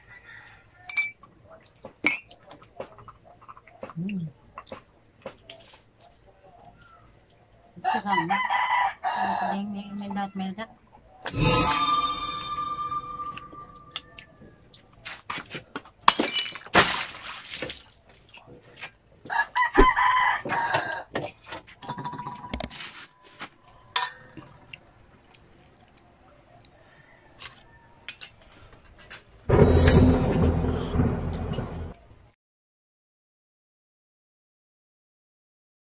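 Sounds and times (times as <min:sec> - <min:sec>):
bell-like ringing tone: 0:11.3 - 0:14.2.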